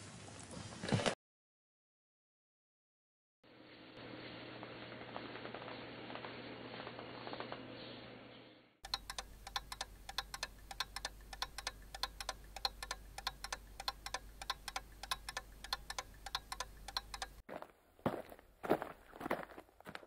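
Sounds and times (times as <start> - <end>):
rapid mechanical ticking: 8.8 - 17.4.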